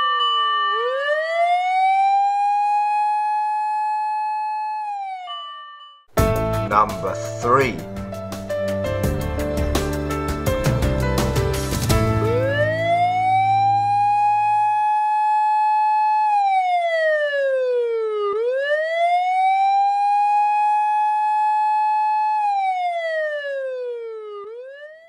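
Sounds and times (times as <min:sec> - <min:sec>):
emergency vehicle siren wailing: 0:00.0 - 0:05.6, 0:12.0 - 0:25.0.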